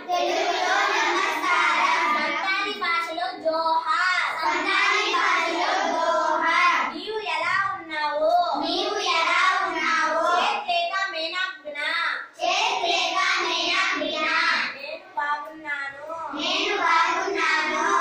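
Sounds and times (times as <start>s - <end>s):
children chanting: 0.0s - 2.9s, 4.2s - 7.0s, 8.6s - 10.6s, 12.4s - 14.8s, 16.3s - 18.0s.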